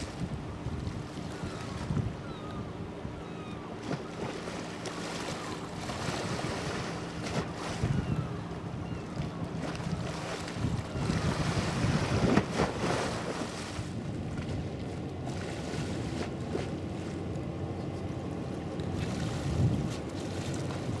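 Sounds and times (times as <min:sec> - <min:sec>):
wind buffeting microphone: 0:00.0 - 0:03.2, 0:05.9 - 0:16.8, 0:19.0 - 0:21.0
low ship engine drone: 0:00.0 - 0:21.0.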